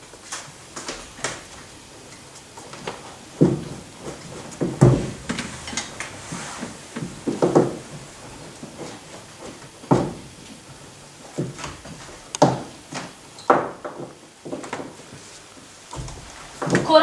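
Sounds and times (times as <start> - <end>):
dull thumps and knocks: 2.7 - 10.5, 11.2 - 15.2, 15.9 - 17.0.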